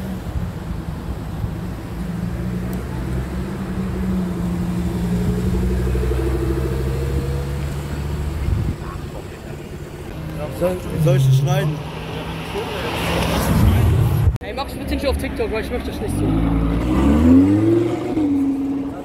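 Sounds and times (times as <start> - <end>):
sports car engine passing: 0.5 - 14.3, 15.3 - 19.0.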